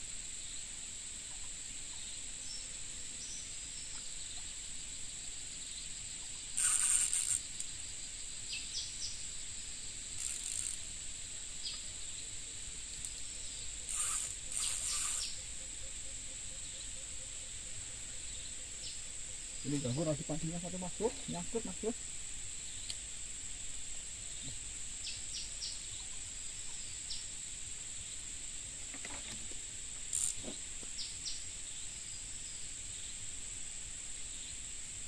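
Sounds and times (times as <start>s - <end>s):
insects buzzing: 0.0s - 35.0s
faint bird chirps: 5.6s - 9.3s, 10.2s - 10.8s, 11.4s - 22.0s, 24.2s - 27.4s, 30.1s - 33.3s
hissy scratching noises: 6.6s - 7.7s, 10.1s - 10.9s, 13.8s - 15.4s, 19.6s - 22.0s, 28.9s - 31.0s.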